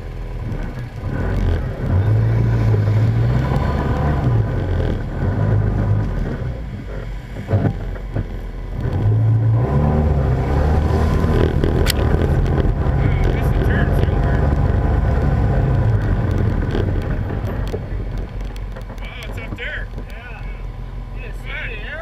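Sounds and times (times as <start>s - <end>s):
utility vehicle engine running: 0.0s - 22.0s.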